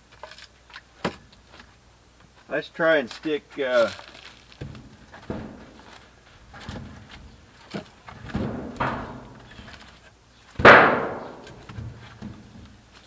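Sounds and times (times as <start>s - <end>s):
firewood logs clunking on woodpile: 0.2s - 1.7s, 3.8s - 13.0s.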